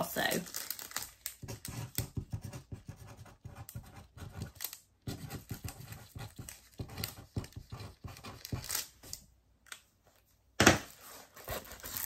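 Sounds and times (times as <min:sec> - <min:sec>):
plastic packaging rustling: 0:00.0 - 0:01.4.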